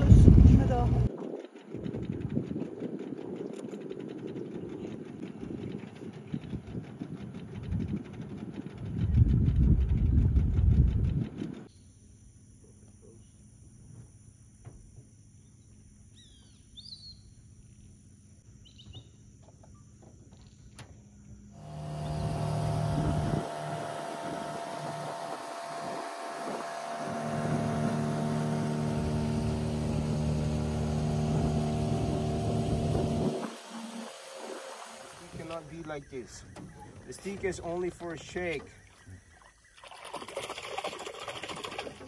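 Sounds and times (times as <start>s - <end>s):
boat motor running: 0.0s - 11.7s, 20.7s - 42.0s
bird chirps: 15.4s - 17.4s, 18.6s - 19.8s
high insect drone: 19.8s - 35.5s
water rushing past hull: 21.6s - 42.0s.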